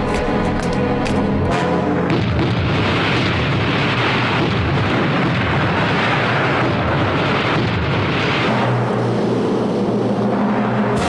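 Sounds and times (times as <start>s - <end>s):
roar of explosions: 1.5s - 11.0s.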